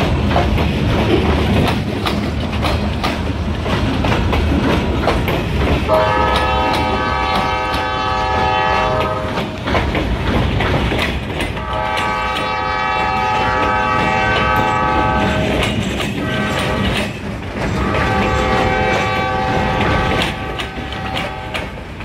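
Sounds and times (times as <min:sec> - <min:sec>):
train wheels clacking over rail joints: 0:00.0 - 0:22.0
locomotive horn blasts: 0:05.9 - 0:09.5, 0:11.6 - 0:17.0, 0:17.7 - 0:21.8.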